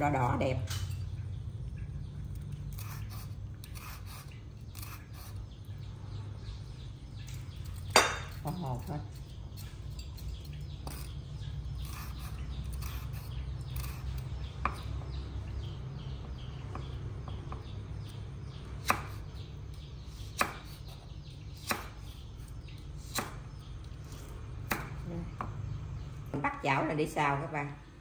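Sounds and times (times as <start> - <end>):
knife chopping on wooden board: 18.8 - 19.3, 20.2 - 21.0, 21.6 - 22.1, 23.0 - 23.4, 24.6 - 25.6.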